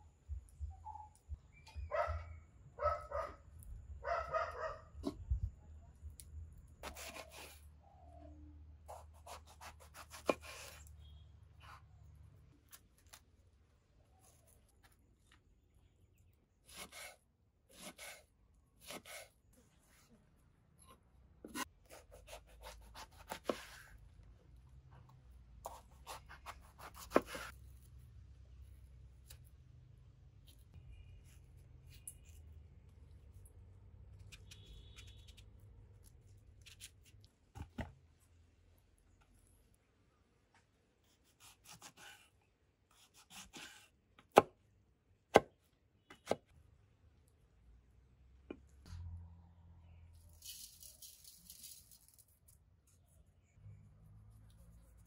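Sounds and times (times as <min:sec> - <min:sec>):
knife slicing crunchy fruit: 0:06.8 - 0:07.6, 0:08.9 - 0:11.8, 0:21.4 - 0:24.0, 0:25.6 - 0:27.6, 0:41.0 - 0:44.6
knife cutting and scraping fruit: 0:06.8 - 0:07.8, 0:08.8 - 0:13.4, 0:14.0 - 0:15.9, 0:16.6 - 0:24.2, 0:24.9 - 0:29.6, 0:30.4 - 0:38.3, 0:41.0 - 0:44.6, 0:49.8 - 0:55.0.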